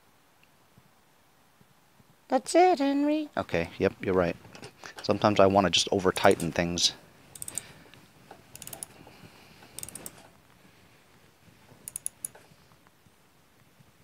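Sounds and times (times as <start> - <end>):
ratchet wrench clicking: 7.4 - 7.6, 8.5 - 8.9, 9.8 - 10.2, 11.9 - 12.4.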